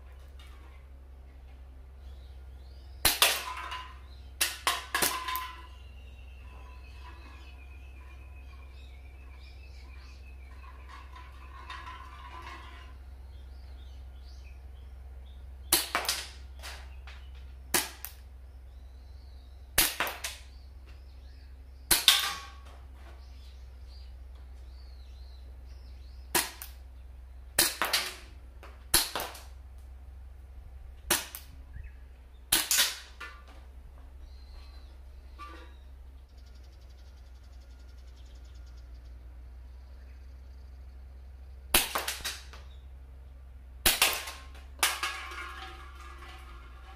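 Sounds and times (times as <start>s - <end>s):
airsoft pistol shots: 19.8s - 20.4s, 28.9s - 29.5s, 41.7s - 42.5s, 43.8s - 44.5s.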